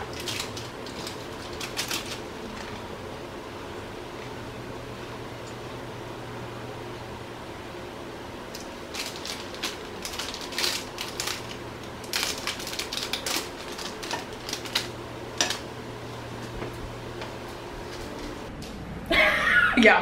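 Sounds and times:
plastic bag crinkling: 0:00.0 - 0:02.8, 0:08.6 - 0:15.7
steady low hum: 0:00.0 - 0:20.0.

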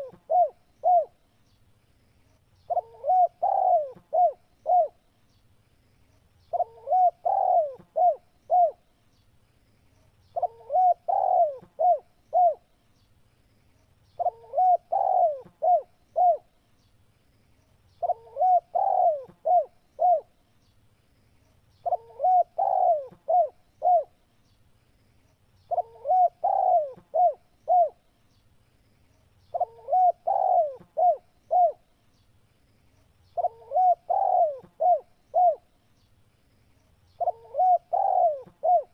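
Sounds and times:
dove cooing: 0:00.0 - 0:01.2, 0:02.7 - 0:05.0, 0:06.5 - 0:08.8, 0:10.4 - 0:12.6, 0:14.2 - 0:16.5, 0:18.0 - 0:20.3, 0:21.8 - 0:24.2, 0:25.7 - 0:28.0, 0:29.5 - 0:31.8, 0:33.4 - 0:35.7, 0:37.2 - 0:38.9.

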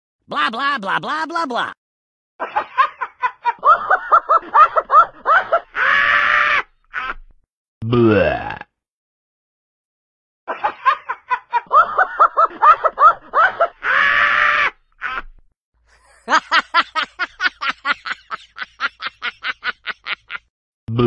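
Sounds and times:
person laughing: 0:06.9 - 0:07.2, 0:10.5 - 0:14.1, 0:15.0 - 0:15.3, 0:15.9 - 0:21.0.

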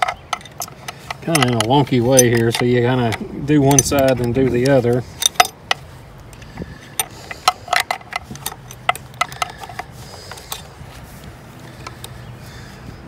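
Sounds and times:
wrench clinking on metal nuts: 0:00.0 - 0:05.8, 0:06.4 - 0:10.7.

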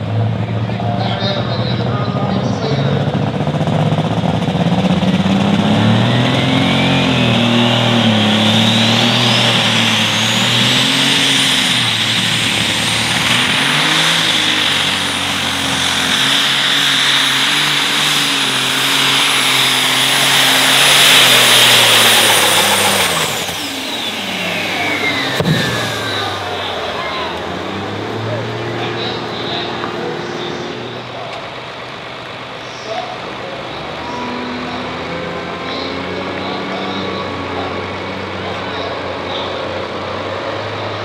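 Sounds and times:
tractor engine at full power: 0:00.0 - 0:41.0
turbocharger whistle: 0:05.0 - 0:27.5.

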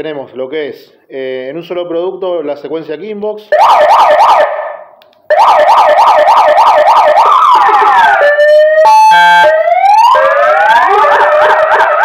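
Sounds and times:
electronic siren yelp and wail: 0:03.5 - 0:12.0.

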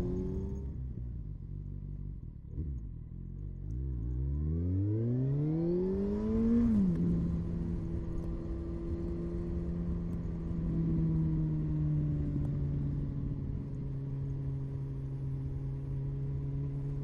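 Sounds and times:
wind and road rumble: 0:00.0 - 0:17.0
motorcycle engine running: 0:06.1 - 0:17.0.

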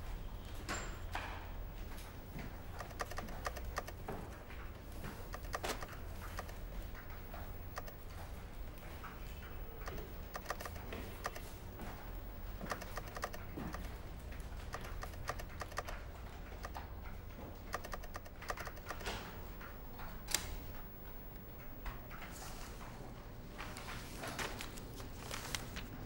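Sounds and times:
calculator keys clicking: 0:02.7 - 0:04.1, 0:05.0 - 0:22.3
low steady hum: 0:04.7 - 0:23.9.

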